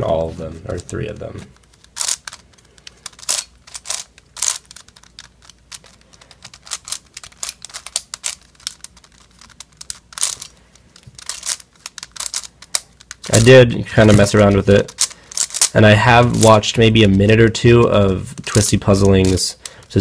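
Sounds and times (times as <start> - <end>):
plastic puzzle clicking and clacking: 0.7 - 13.4, 14.1 - 15.8.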